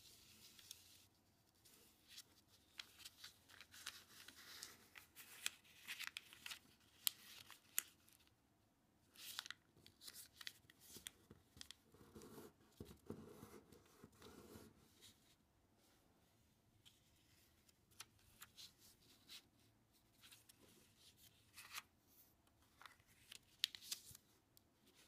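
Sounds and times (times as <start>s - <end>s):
paper rustling and crackling: 1.7s - 8.3s, 9.1s - 11.8s, 22.6s - 24.2s.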